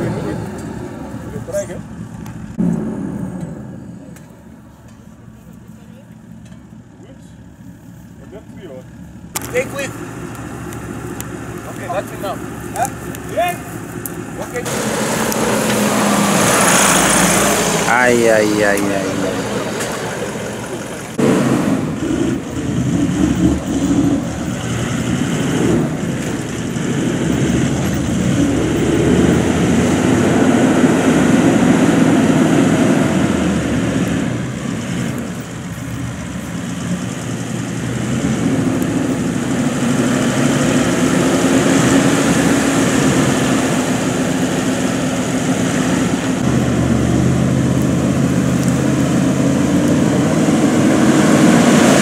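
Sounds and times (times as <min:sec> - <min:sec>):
vehicle engine revving under load: 0:09.3 - 0:52.0.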